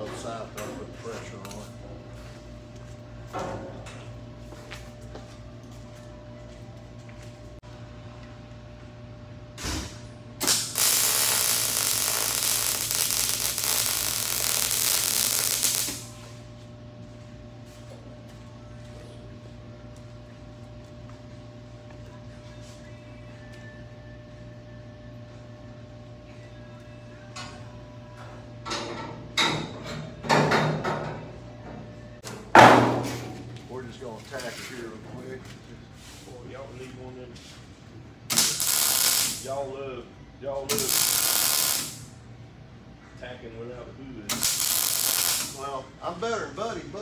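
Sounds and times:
welding arc crackling: 10.4s - 16.2s, 38.3s - 39.5s, 40.7s - 42.1s, 44.3s - 45.7s.

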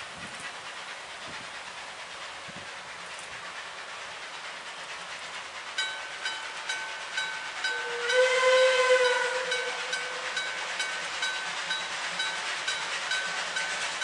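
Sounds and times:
steam whistle blast: 7.6s - 10.7s.

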